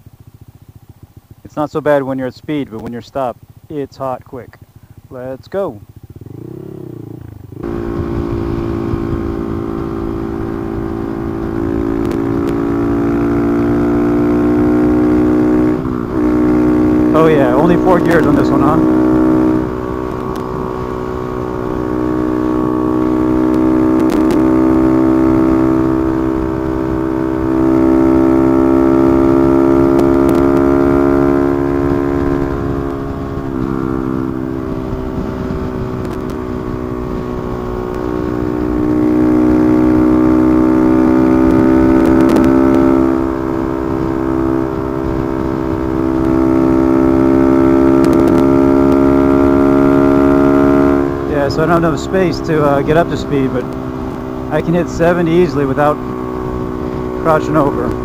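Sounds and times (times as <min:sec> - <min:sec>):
motorcycle engine running: 0:00.0 - 0:58.0
wind noise on microphone: 0:07.6 - 0:12.6, 0:31.7 - 0:49.1.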